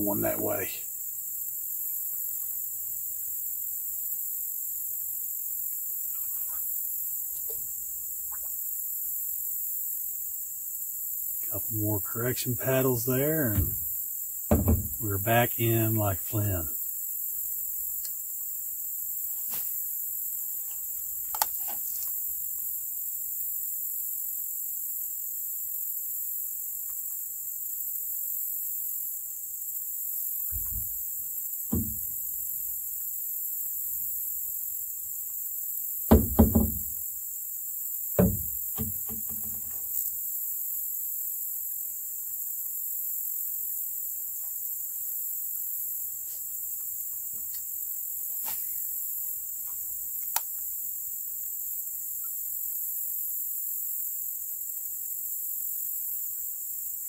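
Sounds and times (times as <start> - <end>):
insects droning: 0.0 - 57.0
paddle knocking canoe: 13.5 - 13.9, 14.5 - 15.1, 31.7 - 32.1, 36.1 - 37.0, 38.2 - 39.7.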